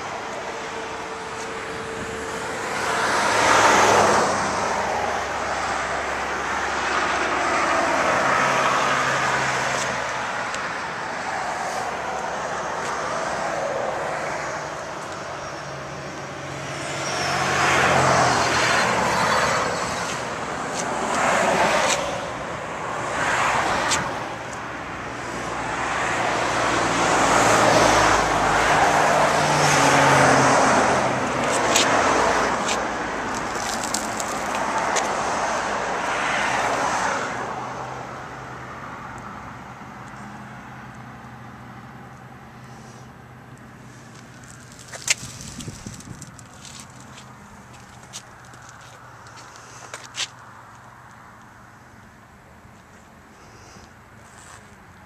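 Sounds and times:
vehicles passing: 0.0s - 55.0s.

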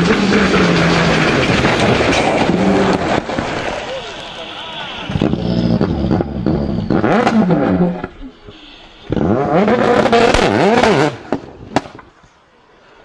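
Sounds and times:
rally car engine revving hard: 0.0s - 3.7s, 5.0s - 8.2s, 9.1s - 11.4s.

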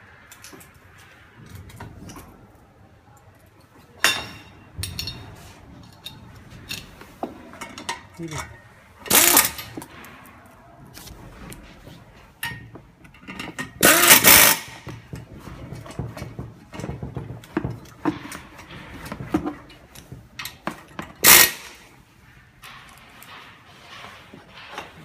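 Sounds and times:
metal parts clinking: 4.0s - 7.0s, 12.4s - 14.8s
pneumatic driver running screws: 9.1s - 9.8s, 13.8s - 14.8s, 21.2s - 21.8s.

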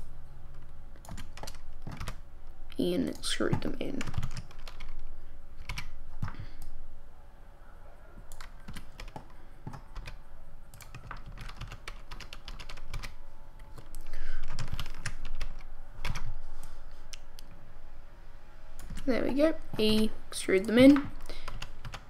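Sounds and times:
keyboard keys tapping: 0.6s - 2.2s, 3.4s - 5.0s, 8.3s - 10.2s, 10.8s - 16.3s.

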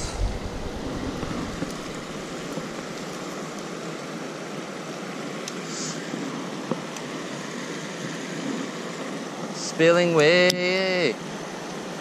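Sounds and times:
water rushing over a weir: 0.0s - 9.6s.

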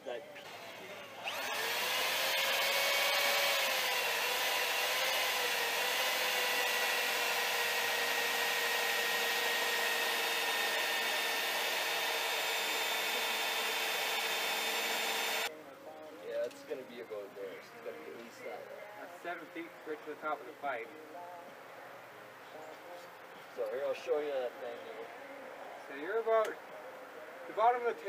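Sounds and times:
power drill drilling: 0.4s - 15.5s.

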